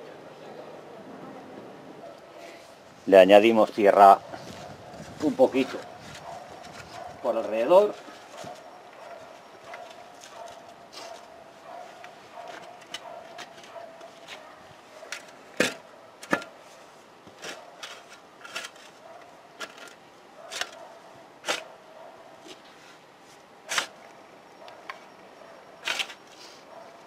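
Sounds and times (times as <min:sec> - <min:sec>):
spade scraping and knocking soil: 0:17.2 - 0:19.0, 0:19.6 - 0:21.7, 0:23.7 - 0:24.0, 0:25.8 - 0:26.6.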